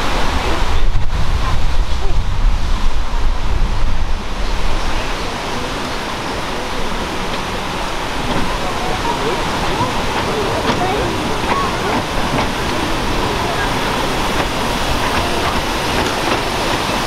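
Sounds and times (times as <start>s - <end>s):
steam locomotive hissing: 0.0s - 17.0s
wind buffeting microphone: 0.0s - 17.0s.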